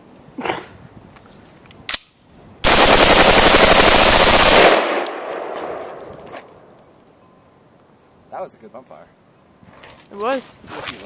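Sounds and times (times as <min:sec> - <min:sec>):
rapid rifle shots: 0:02.6 - 0:06.1
gunshot echo: 0:04.5 - 0:06.6.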